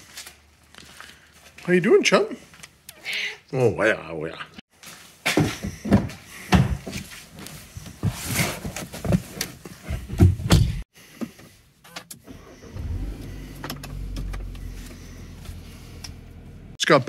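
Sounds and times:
car engine starting and idling: 11.9s - 16.8s.

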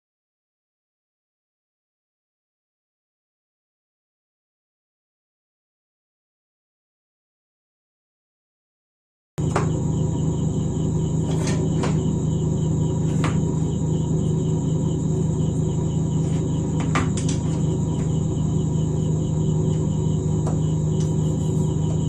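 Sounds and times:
rapid high-pitched pulsing chirp: 9.4s - 22.0s
steady low hum: 9.4s - 22.0s.

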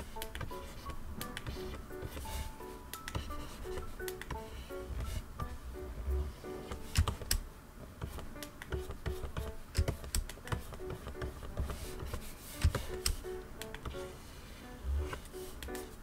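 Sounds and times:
soft background music: 0.0s - 16.0s
stylus tapping on screen: 0.1s - 5.6s, 6.7s - 7.4s, 8.0s - 14.0s.

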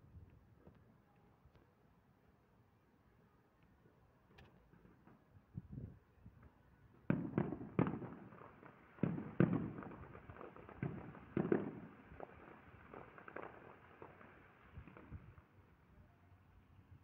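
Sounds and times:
distant fireworks bangs: 7.1s - 15.4s.

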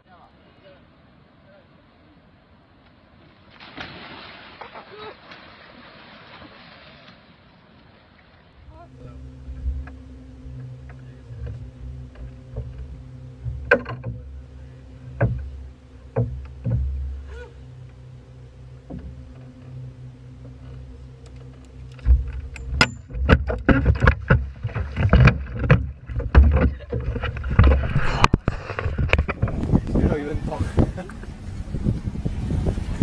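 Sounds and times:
steady low hum: 8.5s - 33.0s
close thumps and rumble: 8.6s - 33.0s
knocks on boat deck: 15.0s - 17.3s.

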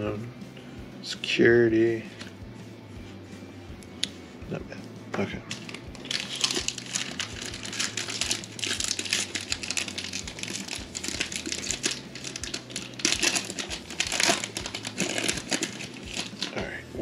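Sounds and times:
plastic wrapper crinkling: 5.5s - 16.6s.

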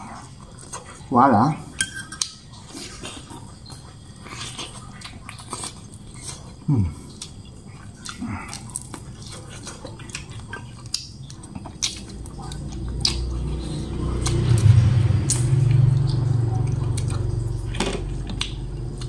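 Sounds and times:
low steady hum: 0.0s - 19.0s
wet chewing and lip smacks: 2.2s - 14.5s.

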